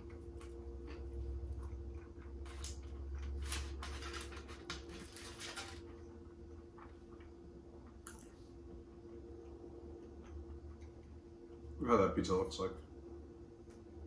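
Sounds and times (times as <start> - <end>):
aluminium foil crinkling: 2.4 - 5.9.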